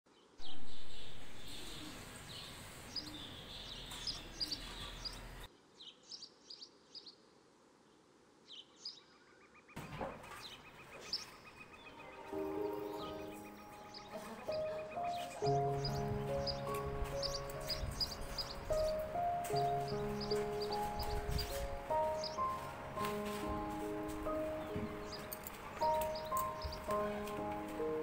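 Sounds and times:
outdoor background hiss: 0.1 - 28.0
small birds chirping: 0.1 - 28.0
soft music: 11.8 - 28.0.

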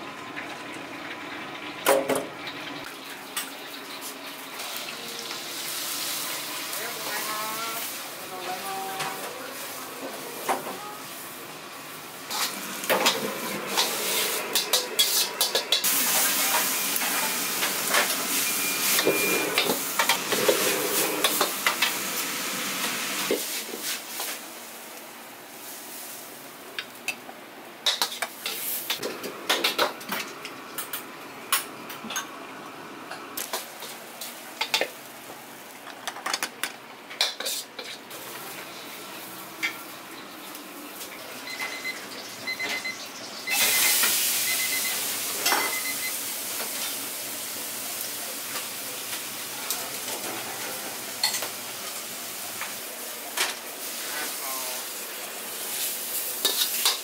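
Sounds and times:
food sizzling in a pan: 0.0 - 31.7, 33.4 - 35.9, 37.2 - 57.0
metal utensil scraping a pan: 12.3 - 15.8, 37.2 - 38.0
utensils and dishes clinking: 12.3 - 22.0, 45.4 - 46.1, 50.0 - 51.6, 56.4 - 57.0.

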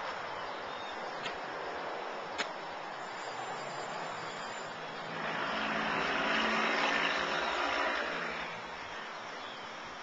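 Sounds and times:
outdoor background hiss: 0.0 - 10.0
vehicle passing: 3.4 - 8.9.

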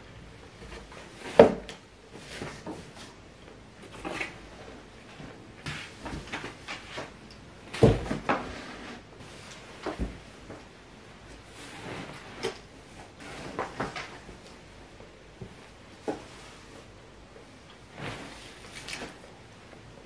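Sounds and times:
fabric rustling: 8.6 - 20.0.

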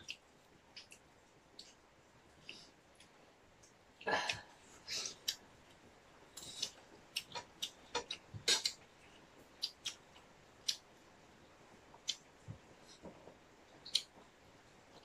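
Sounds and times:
eating clicks and smacks: 6.4 - 8.8, 9.6 - 10.0, 13.8 - 14.2.

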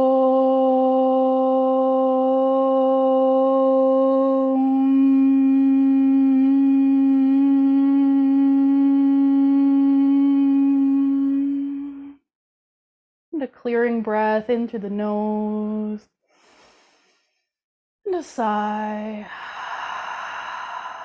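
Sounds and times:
woman chanting om: 0.0 - 12.2, 18.7 - 21.0.

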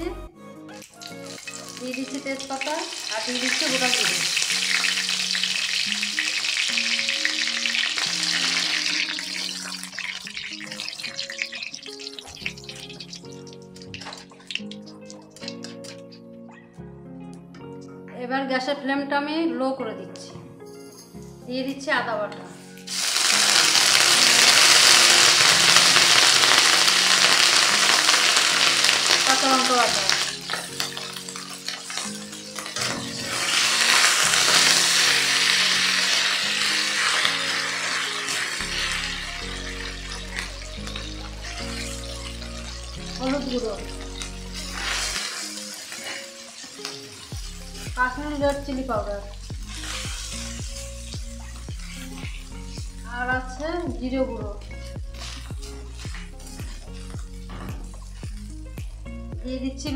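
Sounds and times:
soft background music: 0.0 - 59.9
spices sizzling in hot oil: 0.7 - 16.3, 22.7 - 59.9
metal spatula stirring in pan: 43.9 - 47.9, 49.4 - 53.0
spatula scraping pan: 51.5 - 52.6.

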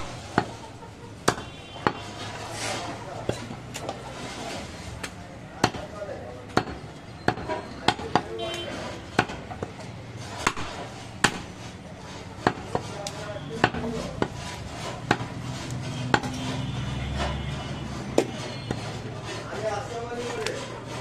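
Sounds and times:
cleaver chopping meat on wood: 0.0 - 0.6, 1.2 - 2.1, 5.0 - 8.4, 9.1 - 16.6, 18.0 - 19.4.

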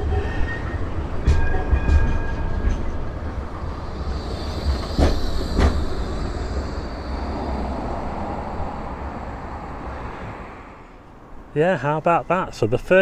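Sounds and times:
tram rolling with low rumble: 0.0 - 13.0
wheels clunking on track: 1.2 - 7.6
faint high whine: 3.8 - 10.2.

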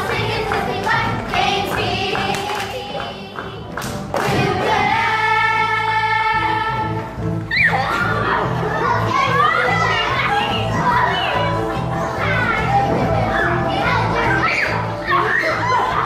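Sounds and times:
children singing together: 0.0 - 7.2.

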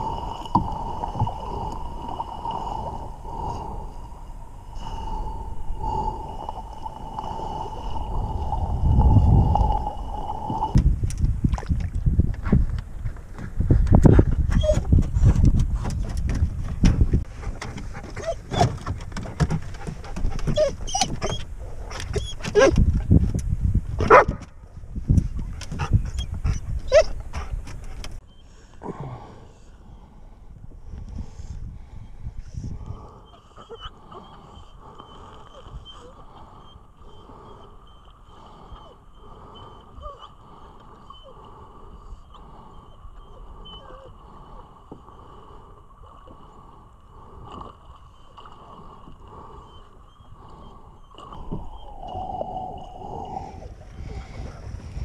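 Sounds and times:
wind rumble on microphone: 0.0 - 28.2, 29.9 - 33.7, 51.2 - 55.0
dog whining: 14.5 - 14.8, 18.2 - 18.8, 20.5 - 22.8, 26.9 - 27.2, 43.2 - 44.1.

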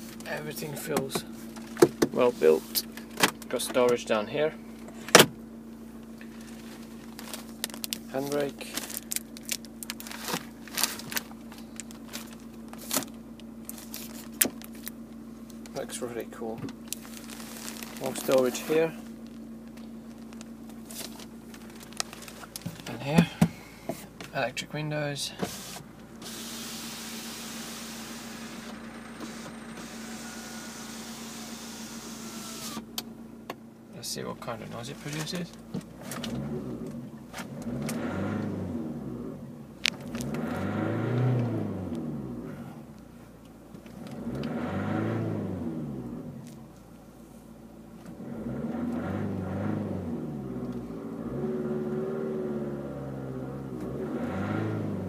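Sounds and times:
electric window motor humming: 25.4 - 33.0
car engine revving: 25.5 - 33.0, 35.9 - 42.9, 43.9 - 46.5, 48.0 - 55.0.

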